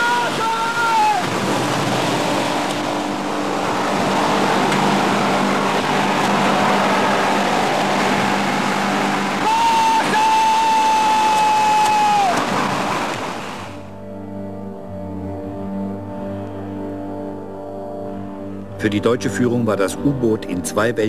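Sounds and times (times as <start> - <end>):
loud high held tone: 0.0 - 14.0
rushing wind: 0.0 - 14.0
steady low hum: 1.3 - 9.5.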